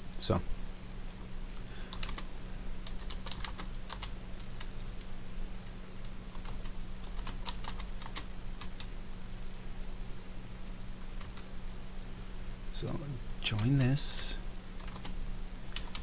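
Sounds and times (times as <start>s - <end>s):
low steady hum: 0.0s - 16.0s
computer keyboard typing: 1.9s - 5.0s, 6.3s - 8.9s, 11.2s - 11.5s, 14.8s - 16.0s.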